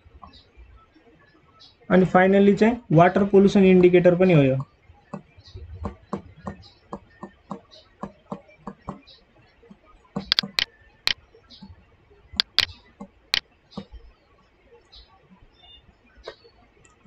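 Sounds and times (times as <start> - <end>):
stylus tapping on tablet screen: 9.7 - 10.7, 12.4 - 14.0.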